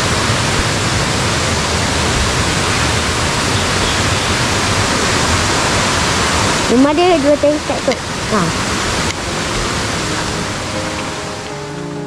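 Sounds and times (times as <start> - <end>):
rushing river water: 0.0 - 12.0.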